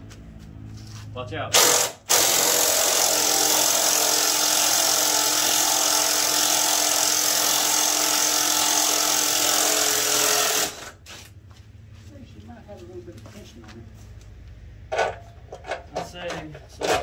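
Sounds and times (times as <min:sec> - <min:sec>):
handheld power tool running: 0:01.6 - 0:11.0.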